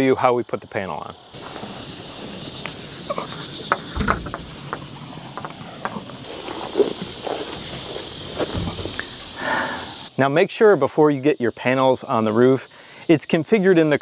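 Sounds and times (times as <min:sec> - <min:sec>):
high-pitched insect drone: 0:00.0 - 0:14.0
dull thumps: 0:02.6 - 0:09.2.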